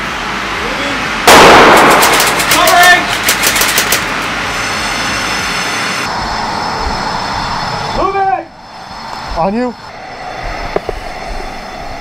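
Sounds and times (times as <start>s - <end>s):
loud blast: 1.2s - 3.0s
rapid airsoft gun shots: 1.3s - 4.1s.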